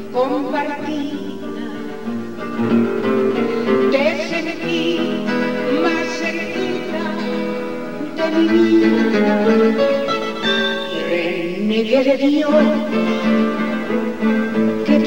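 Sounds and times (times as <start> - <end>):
woman singing: 0.0 - 2.2, 3.7 - 13.9, 14.7 - 15.0
guitar accompaniment: 0.0 - 15.0.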